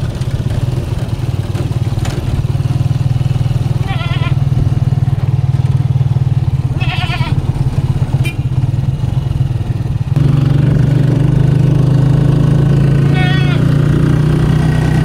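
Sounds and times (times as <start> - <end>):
motorcycle engine running: 0.0 - 15.0
goat bleating: 3.8 - 4.4, 6.8 - 7.4, 13.1 - 13.7.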